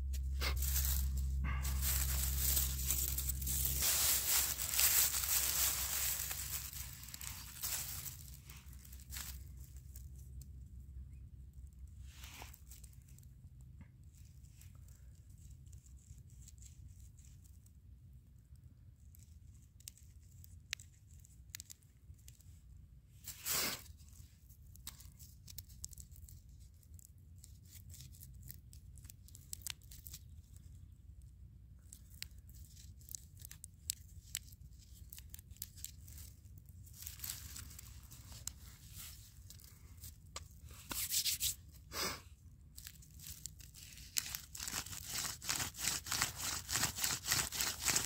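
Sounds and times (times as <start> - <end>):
dry grass rustling: 0.0 - 10.2, 27.4 - 30.6, 31.9 - 41.6, 42.8 - 48.0
stone scraping mushroom: 44.3 - 48.0.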